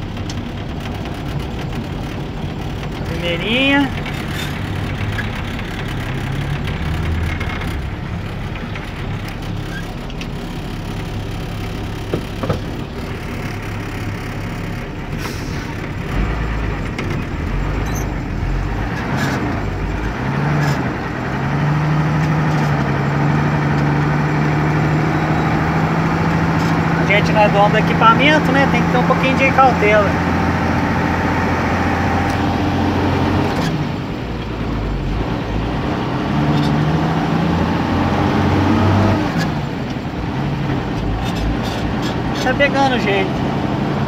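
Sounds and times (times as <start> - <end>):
deep rumble: 0.0 - 23.2
truck engine pulling away: 0.0 - 44.0.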